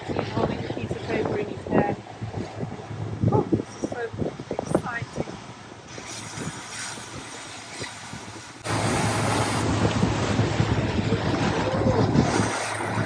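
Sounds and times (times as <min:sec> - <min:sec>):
boat engine hum: 0:00.0 - 0:13.0
wind on microphone: 0:00.0 - 0:13.0
bow wave rushing: 0:05.9 - 0:13.0.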